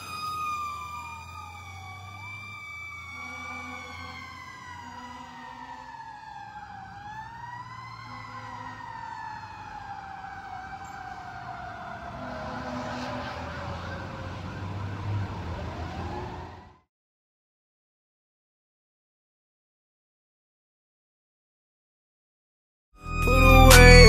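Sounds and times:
engine and traffic rumble: 0.0s - 16.9s
fire engine siren: 0.0s - 16.9s, 23.0s - 24.0s.

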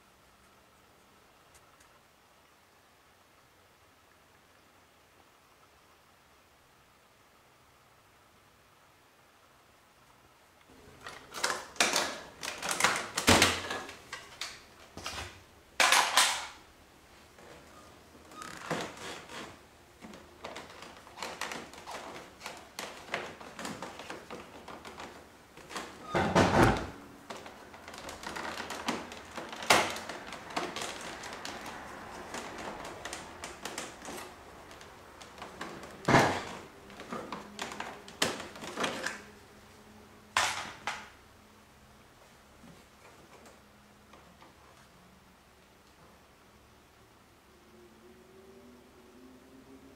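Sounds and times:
plastic panels clicking and tapping: 11.0s - 16.6s.

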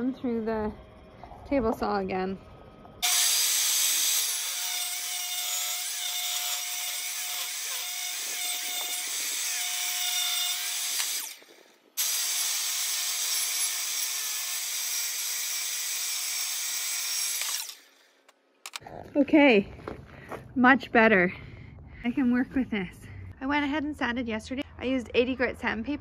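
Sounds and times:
table saw ripping a board: 3.0s - 18.0s.

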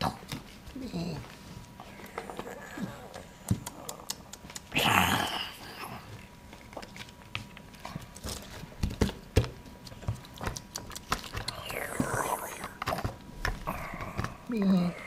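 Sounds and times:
person growling like a dinosaur: 4.8s - 6.0s.

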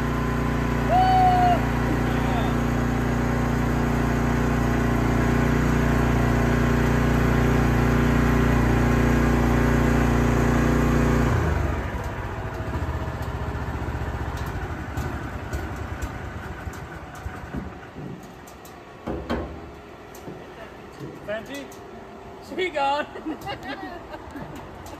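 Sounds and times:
turbojet engine running: 0.0s - 17.4s.

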